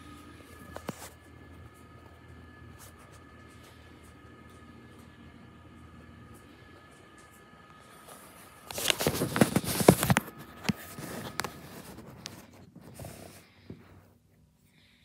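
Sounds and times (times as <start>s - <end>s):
phone handling rustling: 8.6s - 12.4s
taps and rubbing: 8.7s - 13.9s.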